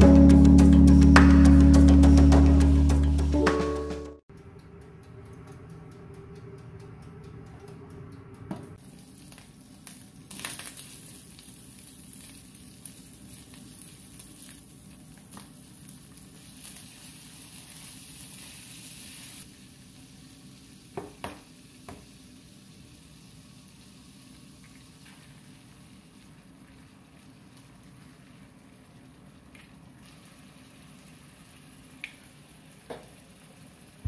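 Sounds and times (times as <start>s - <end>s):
meat sizzling in a frying pan: 8.8s - 28.7s.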